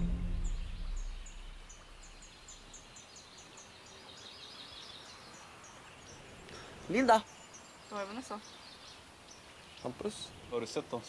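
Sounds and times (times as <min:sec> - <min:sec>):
music: 0:00.0 - 0:01.6
short high bird chirps: 0:00.0 - 0:02.9
dense bird twittering: 0:00.0 - 0:11.0.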